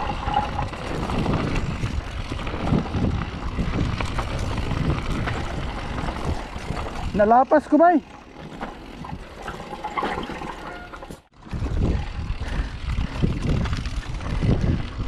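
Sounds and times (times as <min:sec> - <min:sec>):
wind rumbling on microphone: 0:00.0 - 0:07.2, 0:11.3 - 0:15.0
bike knocks and rattles: 0:00.0 - 0:15.0
bike tyre noise on dirt: 0:00.0 - 0:15.0.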